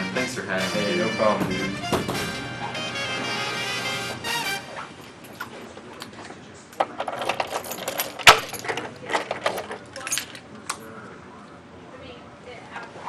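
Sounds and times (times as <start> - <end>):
keys jingling: 6.8 - 10.4.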